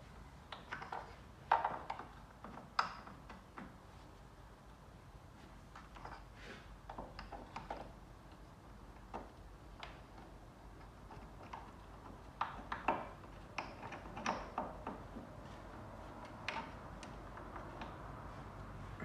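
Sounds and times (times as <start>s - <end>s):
small tool clicks and knocks: 5.8s - 15.2s.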